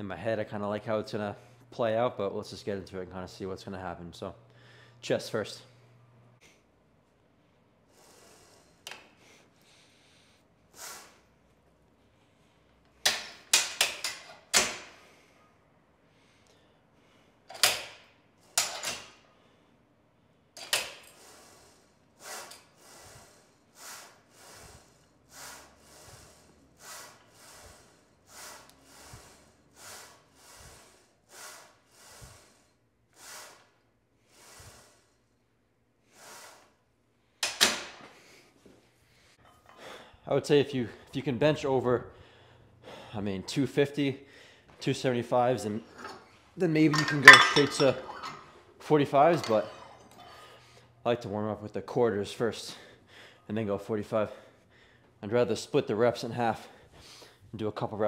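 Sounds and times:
steel bar clanking: 46.9 - 48.4.

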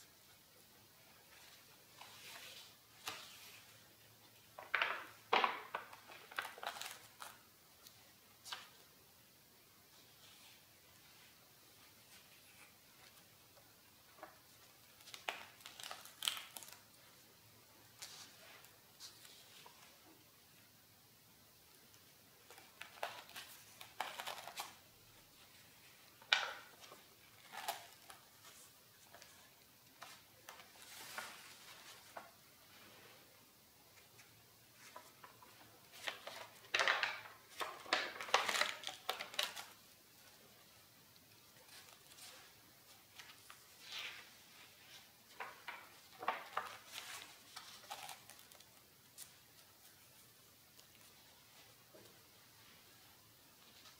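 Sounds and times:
paper crackling and rustling: 4.6 - 8.8, 14.2 - 17.0, 22.4 - 24.9, 25.5 - 32.4, 34.0 - 40.4, 41.6 - 50.2
paper page turning: 4.6 - 8.8, 14.2 - 16.9, 22.4 - 24.8, 30.0 - 32.3, 34.2 - 39.8, 43.1 - 49.4.

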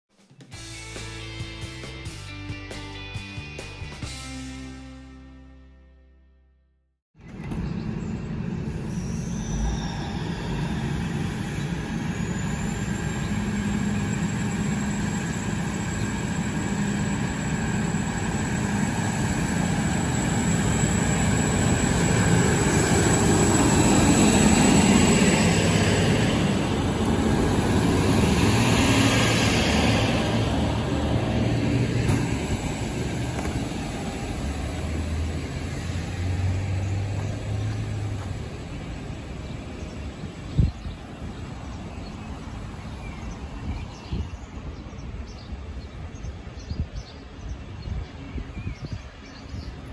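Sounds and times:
high whine: 7.3 - 40.4
diesel railcar passing: 7.3 - 46.6.

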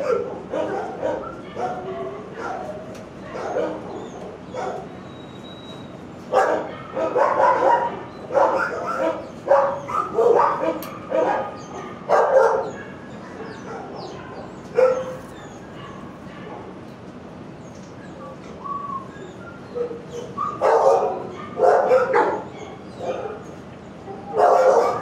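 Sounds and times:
dog barking: 0.0 - 4.9, 6.3 - 16.7, 19.8 - 23.5, 24.1 - 25.0.

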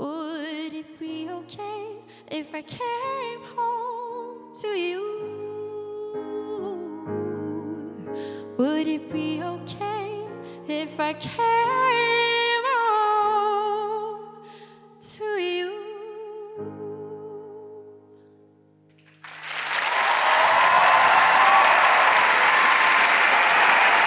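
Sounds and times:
woman singing with vibrato: 0.0 - 8.0
audience applauding: 19.0 - 24.0.

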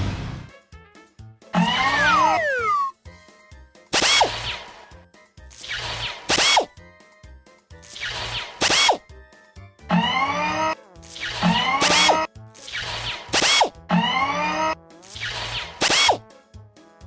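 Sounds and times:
cartoon drill-like machine noise: 1.6 - 2.9, 3.9 - 4.8, 5.6 - 6.7, 7.9 - 9.0, 9.9 - 16.2
background music with steady beat: 3.0 - 10.1.

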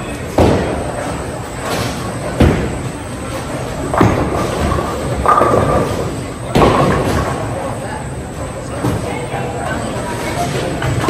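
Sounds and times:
background chatter: 0.0 - 11.0
bowling balls crashing into pins: 0.3 - 1.0, 1.6 - 7.7.

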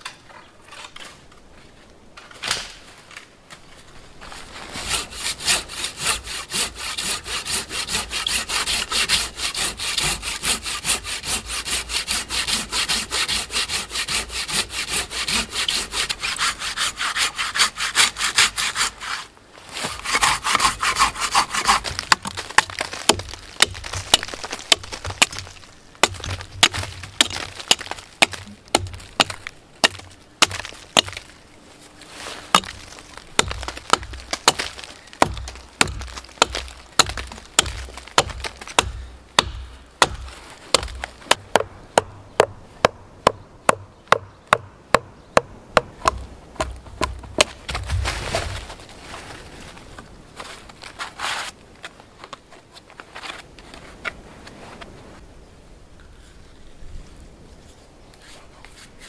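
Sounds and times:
hand saw cutting wood: 4.8 - 22.0.

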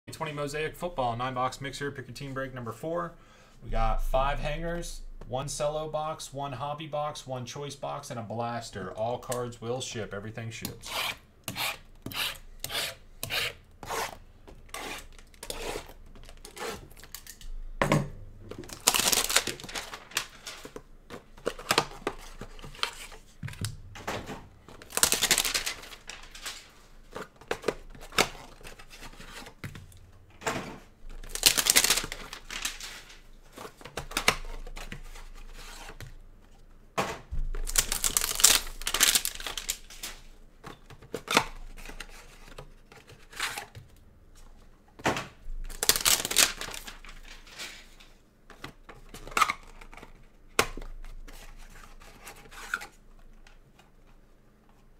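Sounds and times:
wrapper tearing: 18.6 - 20.7, 24.8 - 26.7, 31.2 - 33.2, 37.6 - 40.2, 45.7 - 47.6.

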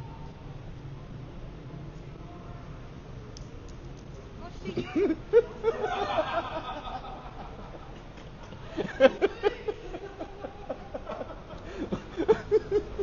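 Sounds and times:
person laughing: 4.7 - 7.6, 8.8 - 13.0.

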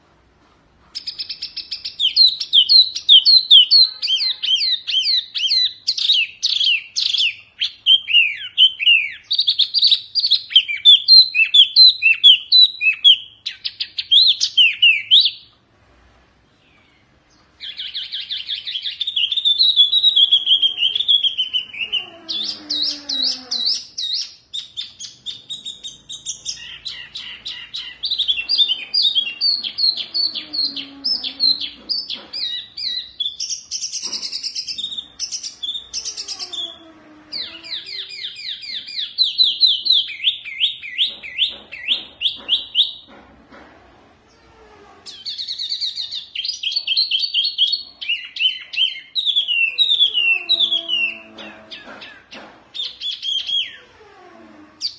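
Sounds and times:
bird singing whistled notes: 1.0 - 15.5, 17.6 - 36.7, 45.1 - 51.2.

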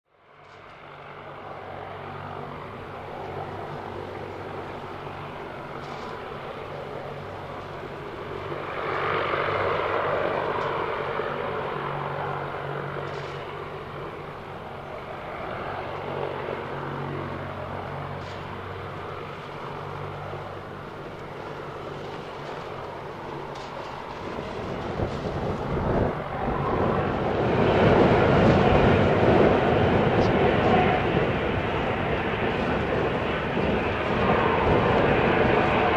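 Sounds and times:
jet engines running: 0.2 - 35.9.

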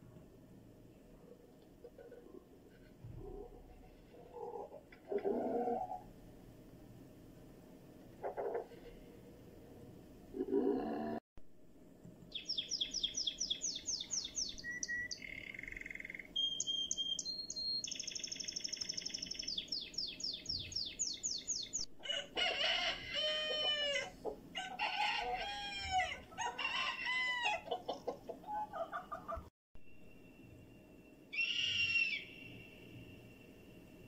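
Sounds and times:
songbird trills and whistles: 12.3 - 21.9, 29.9 - 33.6
bird repeated arching calls: 12.3 - 22.2, 31.3 - 32.7.

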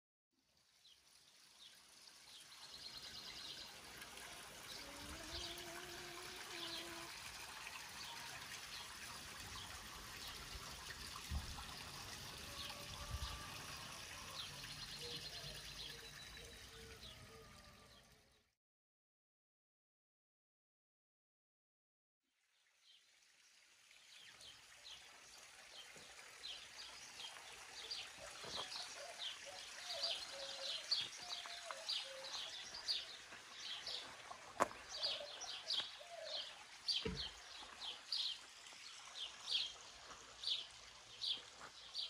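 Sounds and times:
water trickling into pond: 0.3 - 18.5, 22.3 - 42.0
birds chirping and trilling: 2.3 - 7.1, 12.3 - 18.4, 25.7 - 42.0.

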